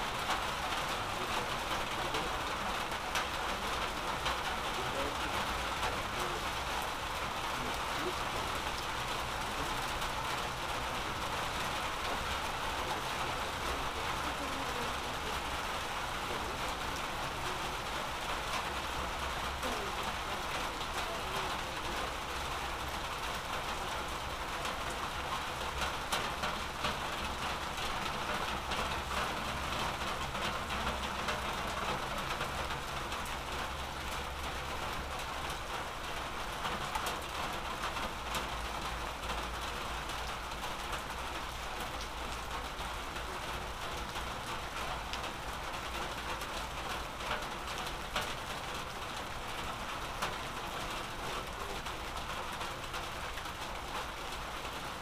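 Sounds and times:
rain drops ticking on surfaces: 0:00.0 - 0:55.0.

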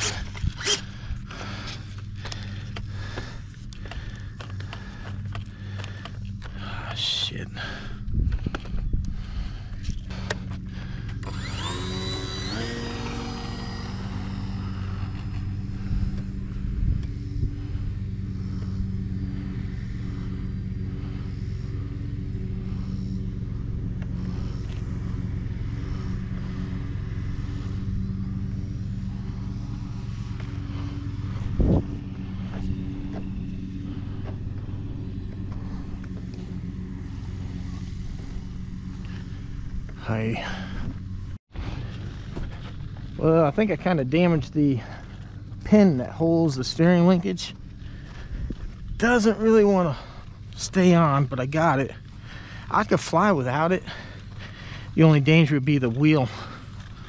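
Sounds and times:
model airplane motor whine: 0:00.0 - 0:57.0.

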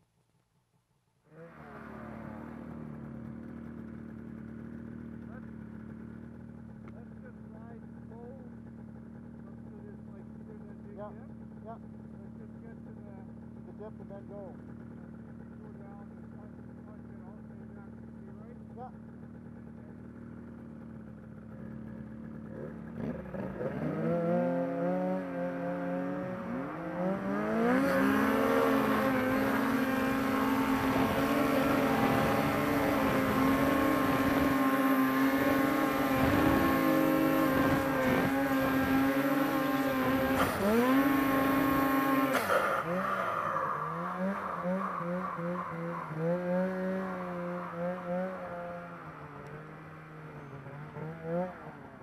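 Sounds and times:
snowmobile engine revving: 0:22.5 - 0:52.0.

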